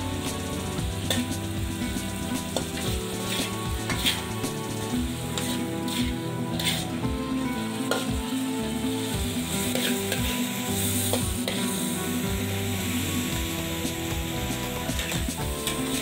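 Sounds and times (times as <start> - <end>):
background music: 0.0 - 16.0
food sizzling in hot oil: 0.0 - 16.0
metal spatula scraping pan: 2.2 - 7.0, 9.5 - 12.0.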